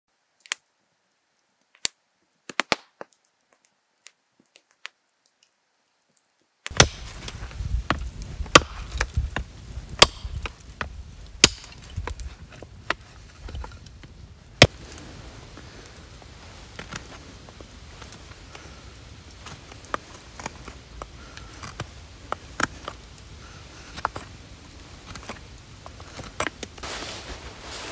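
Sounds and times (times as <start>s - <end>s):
campfire crackling and popping: 0.4s - 27.9s
hatchet chopping wood: 6.7s - 13.0s, 19.4s - 23.0s.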